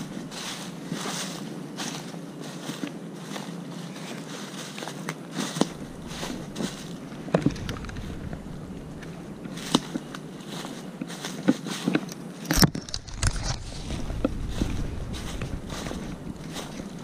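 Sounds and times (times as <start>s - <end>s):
footsteps crunching dry leaves: 0.0s - 17.0s.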